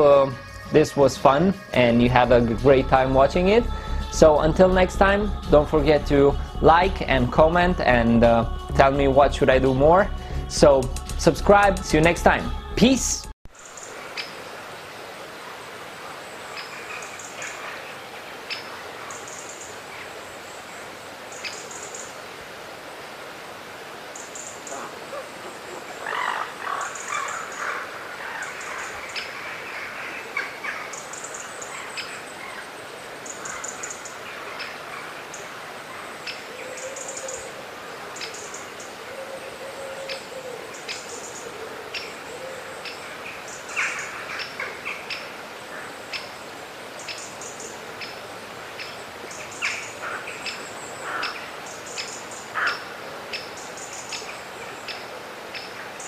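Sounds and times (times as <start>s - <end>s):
steady hiss: 0.0s - 56.0s
birds chirping: 24.1s - 56.0s.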